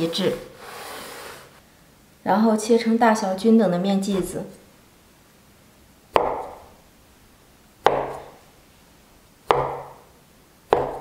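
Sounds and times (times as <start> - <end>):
cleaver chopping on wooden board: 6.2 - 6.6, 7.8 - 8.3, 9.5 - 10.0, 10.7 - 11.0.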